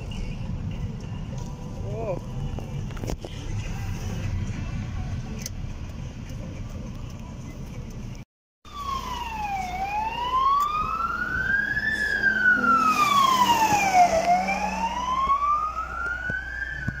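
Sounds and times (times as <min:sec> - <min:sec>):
truck engine rumbling: 0:00.0 - 0:17.0
fire engine siren wailing: 0:08.7 - 0:17.0.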